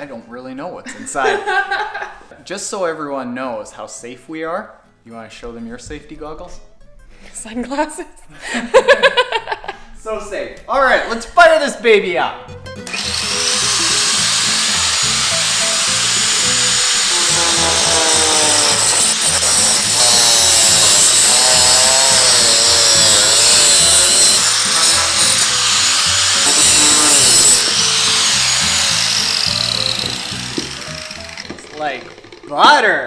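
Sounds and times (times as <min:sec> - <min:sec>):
background music: 0:01.3 - 0:33.0
angle grinder cutting metal: 0:12.8 - 0:32.6.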